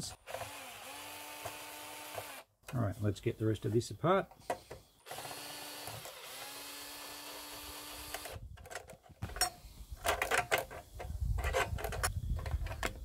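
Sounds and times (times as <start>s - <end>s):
cordless drill running: 0.2s - 2.4s, 5.0s - 8.4s.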